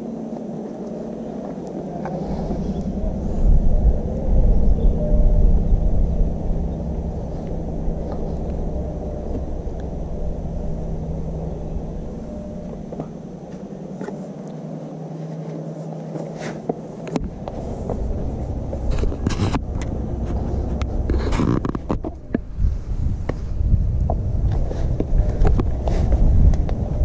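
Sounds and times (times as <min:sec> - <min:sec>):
wind buffeting microphone: 0:00.0 - 0:14.8, 0:16.6 - 0:27.0.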